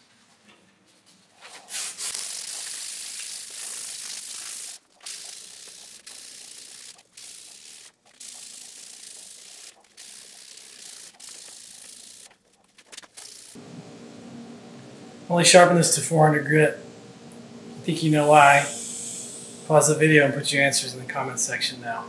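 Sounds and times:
hand sanding rasp: 1.5 - 13.6.

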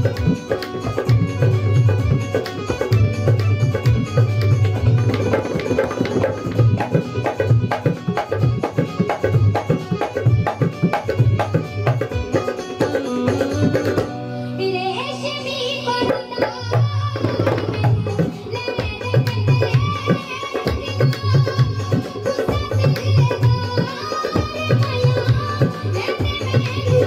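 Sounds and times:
hand drum played fast: 0.0 - 14.1, 16.0 - 27.0.

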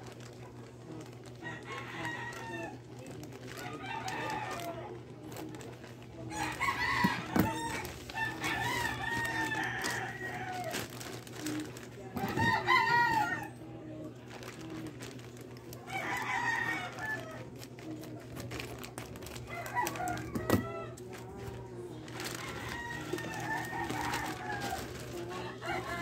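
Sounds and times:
plastic bag rustling: 0.0 - 26.0
rooster crowing: 1.4 - 2.8, 3.6 - 4.9, 6.3 - 10.9, 12.2 - 13.6, 15.8 - 17.6, 19.4 - 21.1, 21.7 - 26.0.

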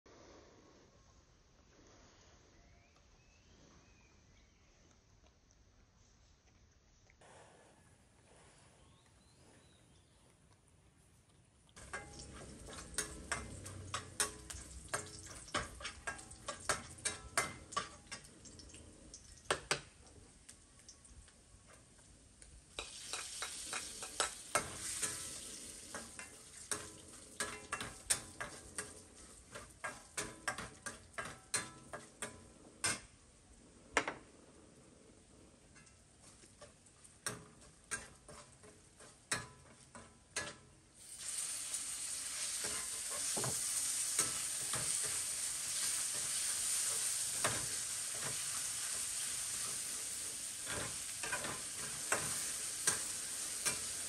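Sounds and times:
metal spatula scraping a wok: 11.8 - 18.3, 22.8 - 33.2, 35.6 - 54.0
hot oil sizzling: 11.8 - 34.2, 35.2 - 54.0.

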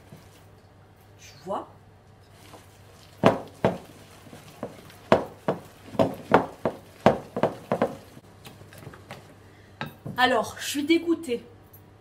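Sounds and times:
whisk beating batter in bowl: 2.4 - 8.2.

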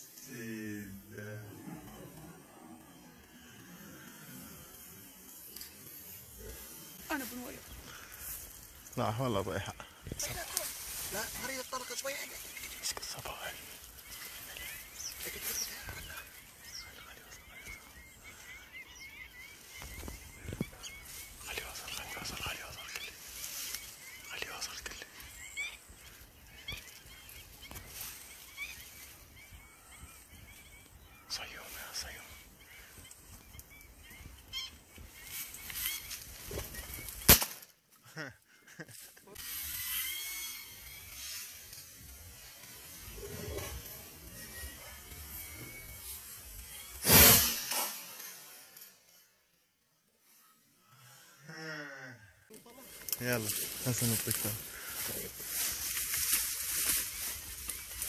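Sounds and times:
bird calling wavering notes: 25.1 - 37.3
shotgun shot: 37.2 - 37.7, 47.0 - 48.2.

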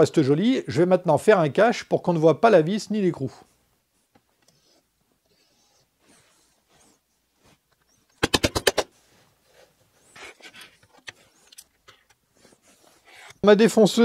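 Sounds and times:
small parts and tools handled: 9.6 - 13.4.

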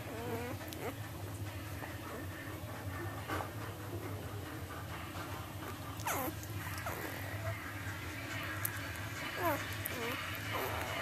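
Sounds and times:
puppies squealing: 0.0 - 1.1, 5.6 - 7.6, 9.2 - 11.0.

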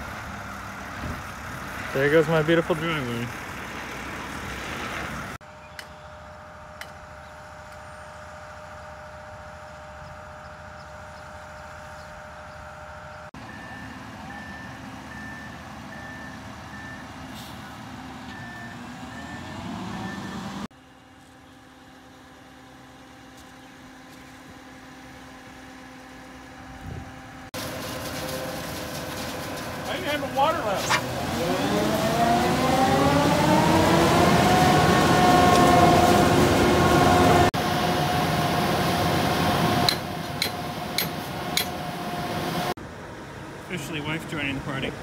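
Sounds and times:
heavy truck engines running: 0.0 - 45.0
truck reversing alarm beeping: 5.5 - 20.7, 30.1 - 42.7.

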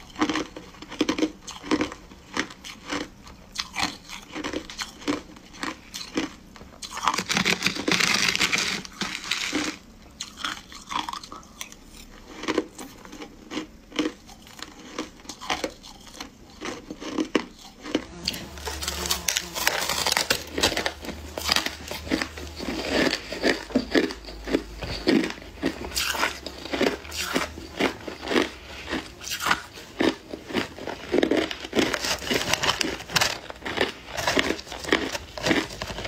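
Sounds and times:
ice being chewed: 0.0 - 36.0.

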